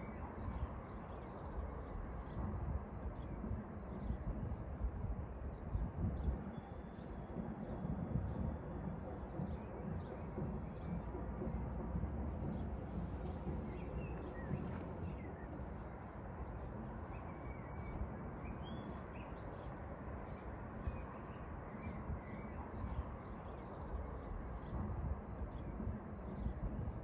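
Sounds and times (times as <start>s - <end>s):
low background rumble: 0.0s - 27.0s
small birds chirping: 5.5s - 11.6s, 12.3s - 27.0s.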